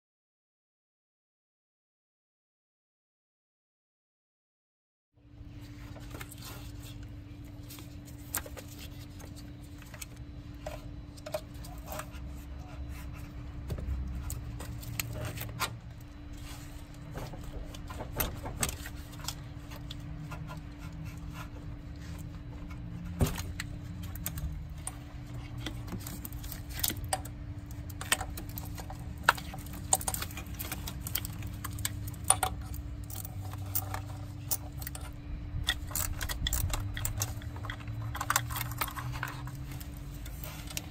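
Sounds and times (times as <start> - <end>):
steady hum: 5.2 - 40.9
metal clamp clicks and rattles: 27.9 - 39.7.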